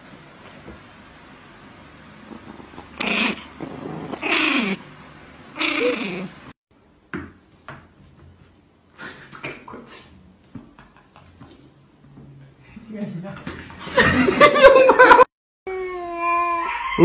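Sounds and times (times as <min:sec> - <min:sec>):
animal wailing: 0:03.0 - 0:04.9, 0:05.5 - 0:06.5.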